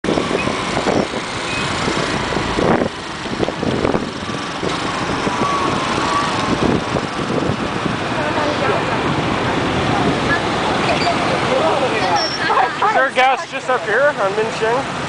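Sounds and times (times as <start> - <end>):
motorcycle engine: 0.0 - 12.0
road and traffic noise: 0.0 - 15.0.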